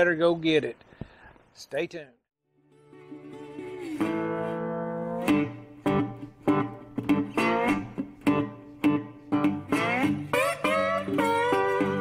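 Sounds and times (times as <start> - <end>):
guitar chords strummed: 2.6 - 12.0.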